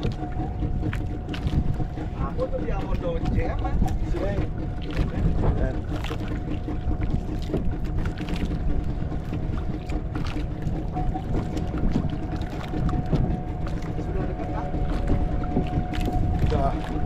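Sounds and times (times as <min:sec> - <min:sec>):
boat engine low rumble: 0:00.0 - 0:17.0
water washing against hull: 0:00.0 - 0:17.0.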